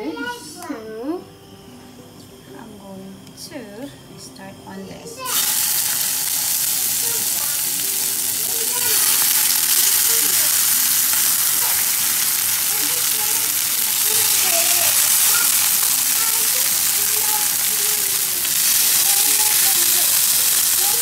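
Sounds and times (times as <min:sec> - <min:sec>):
fish sizzling in a frying pan: 0:05.2 - 0:21.0.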